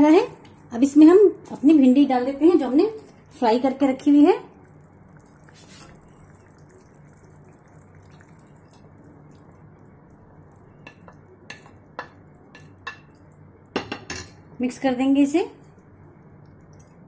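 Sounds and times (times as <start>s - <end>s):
faint low hum: 0.0s - 17.0s
plate and utensils tapping pan: 13.8s - 14.4s.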